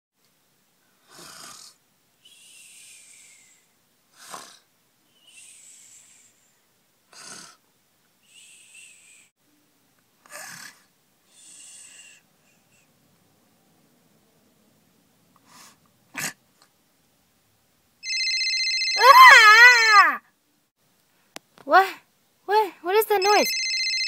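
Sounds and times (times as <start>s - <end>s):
cartoon snoring: 1.0s - 4.7s, 7.1s - 7.6s, 10.2s - 12.2s.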